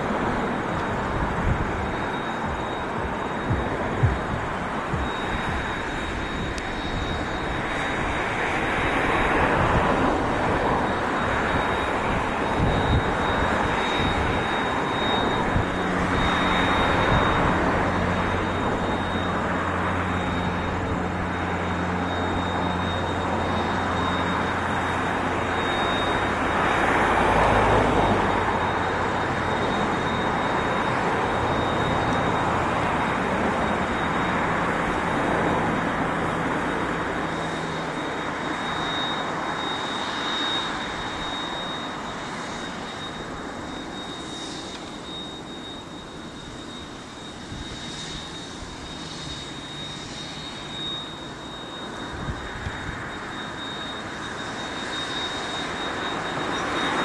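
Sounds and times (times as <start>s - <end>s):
low engine hum: 0.0s - 57.0s.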